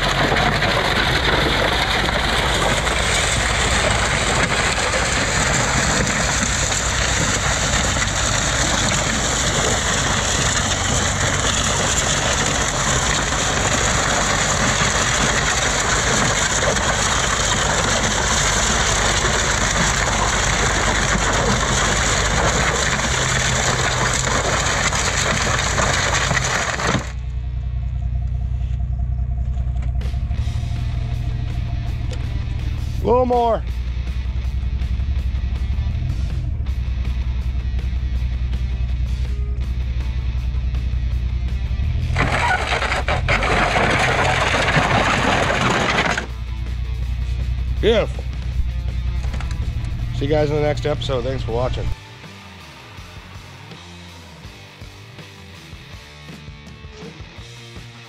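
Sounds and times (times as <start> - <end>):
metal hood scraping over gravel: 0.0 - 27.2, 42.0 - 46.4
vehicle engine running low: 0.0 - 58.0.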